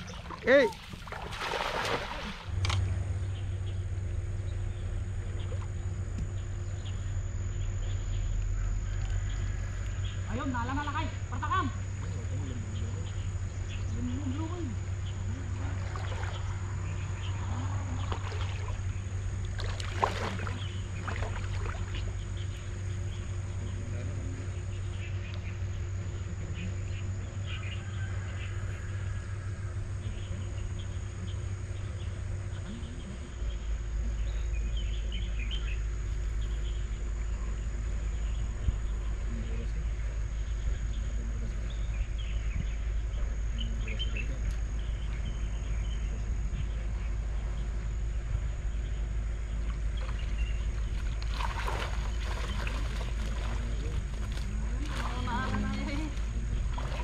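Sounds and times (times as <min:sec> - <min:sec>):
low rumble: 0:00.0 - 0:27.4
insects chirring: 0:00.0 - 0:57.0.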